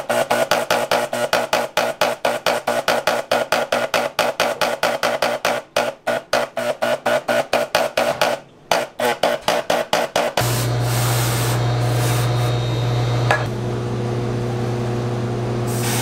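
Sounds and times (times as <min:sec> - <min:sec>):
electric spray gun bursts: 0:10.4 - 0:13.4, 0:15.6 - 0:16.0.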